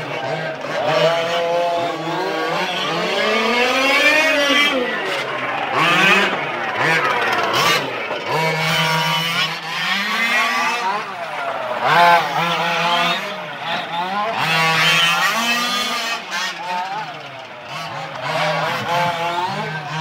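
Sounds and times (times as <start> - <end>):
small two-stroke engines revving: 0.0 - 20.0.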